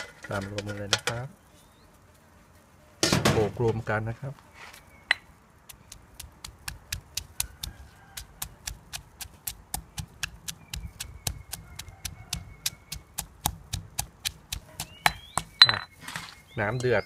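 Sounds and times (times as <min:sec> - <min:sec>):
stone pestle pounding in mortar: 0:05.8 - 0:15.9.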